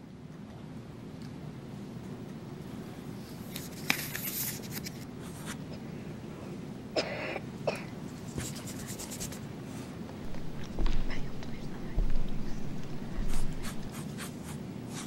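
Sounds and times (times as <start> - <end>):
pencils scratching on paper: 3.4 - 5.6, 8.1 - 9.4, 10.3 - 15.0
person coughing: 7.0 - 7.9.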